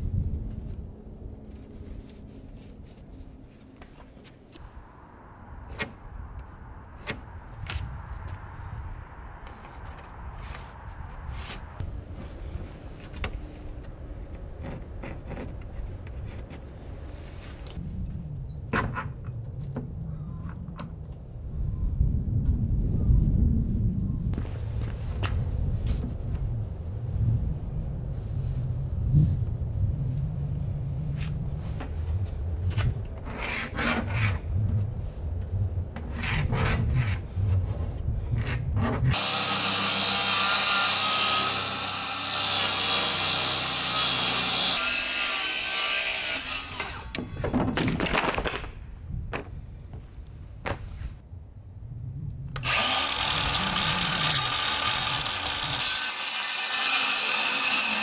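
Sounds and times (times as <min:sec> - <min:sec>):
circular saw cutting plywood: 0:38.8 - 0:47.2, 0:52.6 - 0:58.0.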